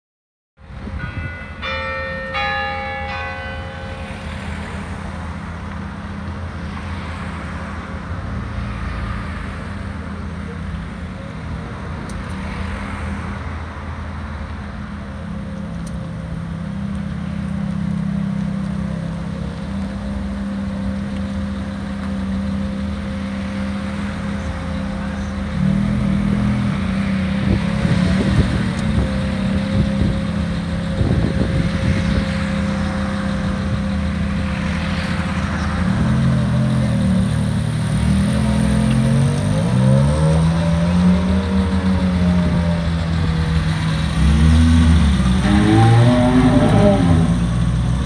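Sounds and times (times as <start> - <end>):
bell ringing: 1.0 - 4.4
car engine idling: 41.2 - 48.0.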